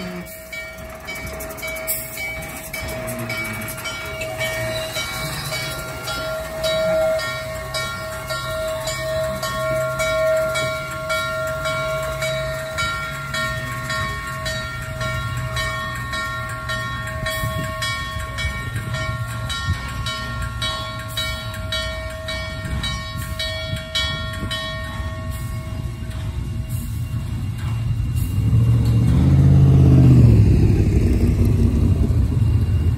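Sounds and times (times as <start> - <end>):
steam locomotive machinery running: 0.0 - 32.9
low rumble: 27.9 - 32.9.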